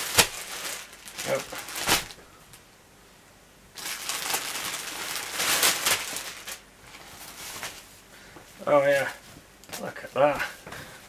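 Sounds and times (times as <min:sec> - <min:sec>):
plastic bag crinkling: 0:00.0 - 0:02.2, 0:03.8 - 0:07.9.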